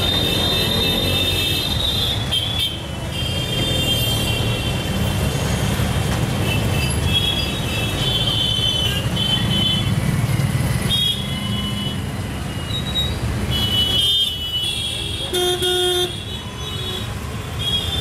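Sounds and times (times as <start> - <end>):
auto-rickshaw engine rumbling: 0.0 - 18.0
vehicle horns honking: 12.7 - 18.0.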